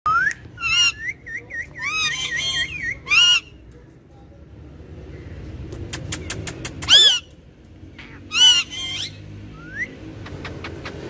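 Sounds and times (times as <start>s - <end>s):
parakeets whistling: 0.1s - 3.6s, 6.3s - 7.3s, 8.0s - 11.0s.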